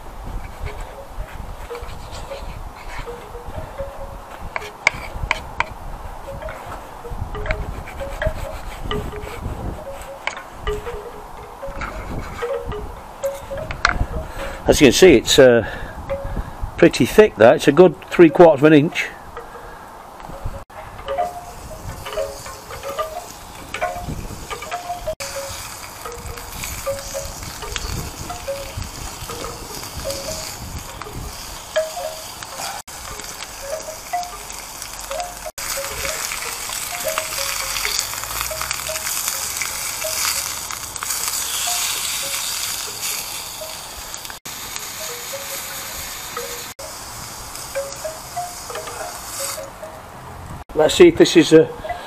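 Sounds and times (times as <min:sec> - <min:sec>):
meat sizzling on a griddle: 0:25.2 - 0:49.6.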